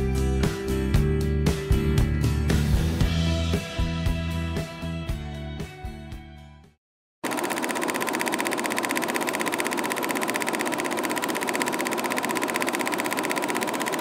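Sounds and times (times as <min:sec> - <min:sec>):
pulsing machine buzz: 0:07.2 - 0:14.0.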